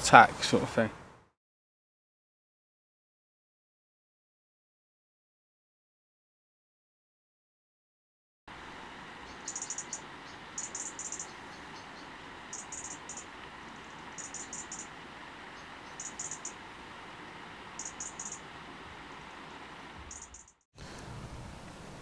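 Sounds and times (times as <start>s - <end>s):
steady background hiss: 0.0s - 1.2s, 8.5s - 22.0s
cricket chirping: 9.2s - 16.6s, 17.7s - 18.5s, 20.0s - 20.6s.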